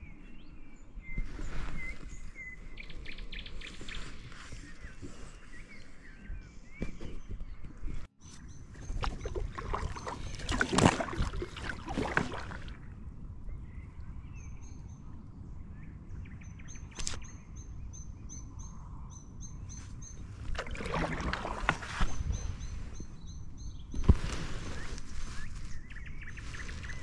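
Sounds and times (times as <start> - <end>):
paddle strokes splashing water: 8.8 - 12.8, 20.4 - 22.7.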